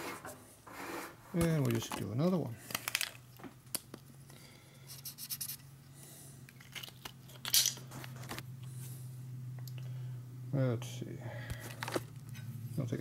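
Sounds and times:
tool scraping metal: 0.0 - 1.4
low machine hum: 0.0 - 13.0.

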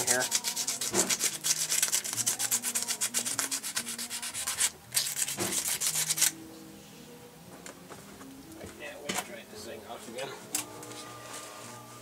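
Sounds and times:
scratchy hand scrubbing: 0.0 - 6.3.

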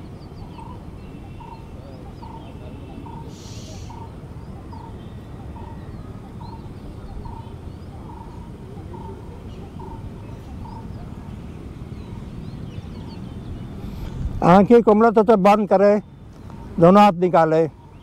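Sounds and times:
bird repeating low note: 0.0 - 18.0
birds chirping: 0.0 - 18.0
brief hiss: 3.3 - 3.9.

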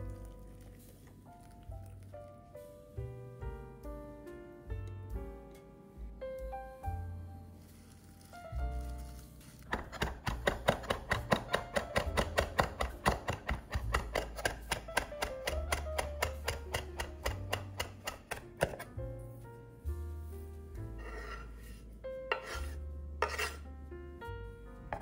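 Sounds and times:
background music: 0.0 - 25.0
knife chopping on cutting board: 9.7 - 18.9.

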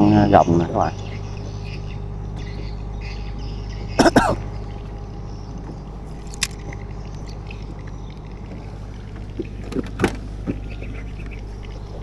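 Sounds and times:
engine droning: 0.0 - 12.0
sharp clicks and knocks: 6.2 - 6.8.

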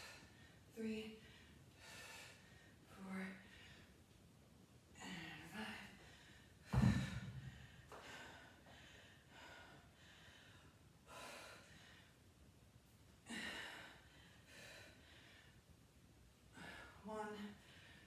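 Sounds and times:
dumbbells thudding on rubber floor: 6.7 - 7.7.

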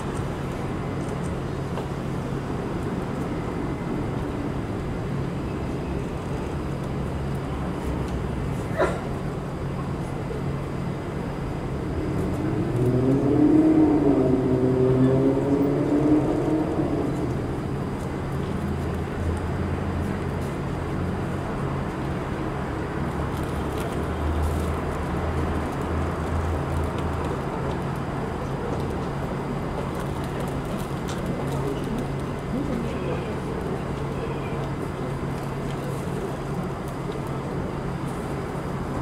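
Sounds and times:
city traffic noise: 0.0 - 39.0
vehicle engine passing: 12.3 - 17.6.

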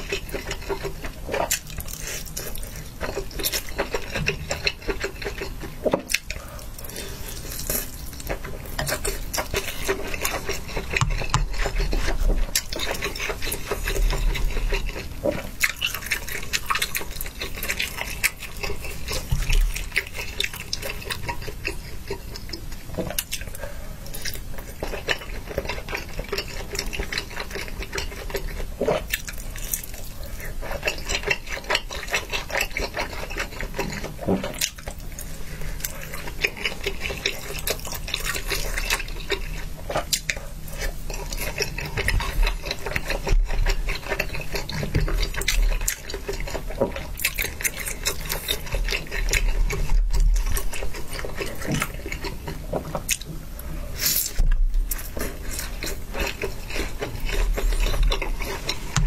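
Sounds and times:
wet chewing: 0.0 - 59.0.

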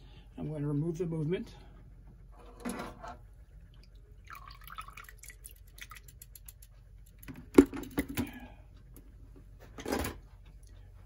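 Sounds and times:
water dripping: 3.8 - 6.6.

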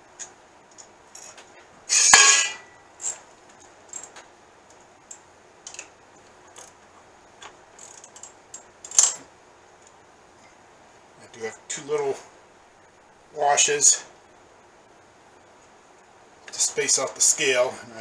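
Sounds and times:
metal tools clattering: 1.2 - 3.2, 3.9 - 4.2, 7.8 - 9.3
sharp metal clink: 1.2 - 3.2.

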